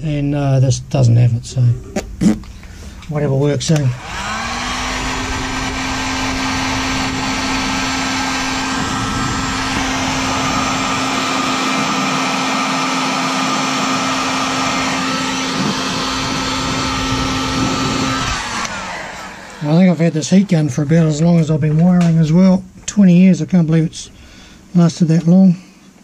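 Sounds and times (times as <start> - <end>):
heat gun fan humming: 2.4 - 26.0
rush of blown air: 4.0 - 20.7.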